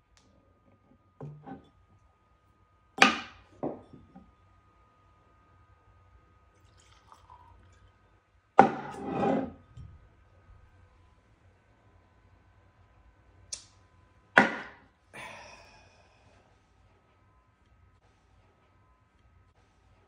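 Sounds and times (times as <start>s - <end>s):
bottle scraping on wood: 1.2s - 1.7s, 8.6s - 9.7s
glass knocking on wood: 1.2s - 1.7s
whiskey pouring into glass: 6.5s - 9.0s.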